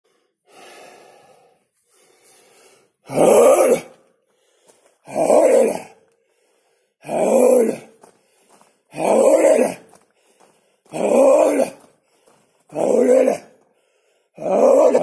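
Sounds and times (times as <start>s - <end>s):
man exhaling breathily: 0.1s - 3.0s.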